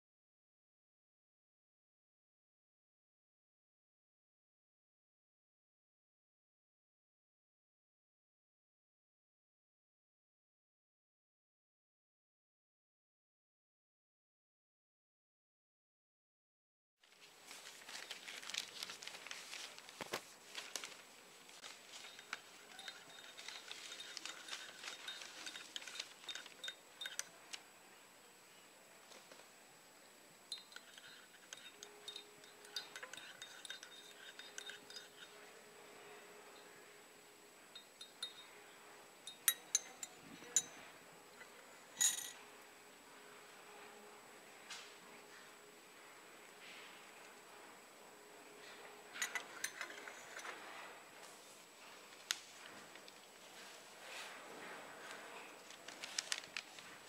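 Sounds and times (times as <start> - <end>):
newspaper rustling: 17.0 - 26.6, 55.6 - 57.0
teaspoon clinking in coffee cup: 22.0 - 27.3, 30.5 - 35.4, 37.8 - 38.6, 39.3 - 40.8, 42.0 - 42.4, 49.2 - 50.5.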